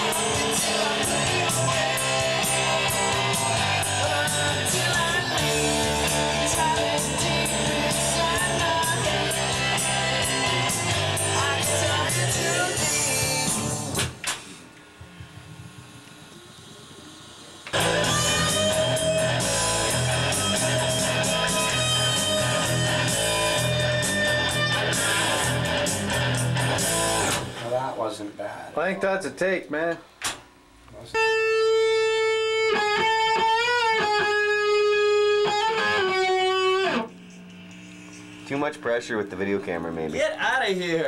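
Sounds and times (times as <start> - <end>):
rock band music: 0.0 - 14.1, 17.8 - 27.6, 31.2 - 37.1
electric guitar sustained note: 31.2 - 40.0.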